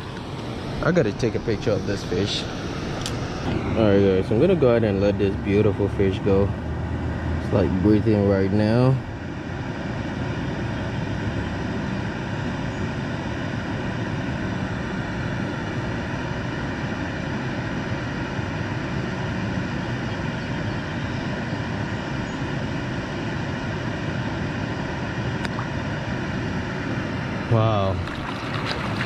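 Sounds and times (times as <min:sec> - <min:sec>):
water rushing through spillway: 0:27.5 - 0:29.0.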